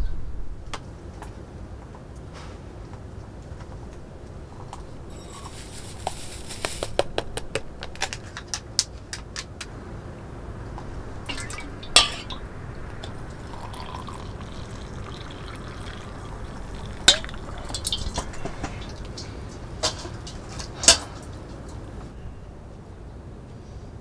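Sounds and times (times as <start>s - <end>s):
hot water pouring into mug: 11.2s - 21.0s.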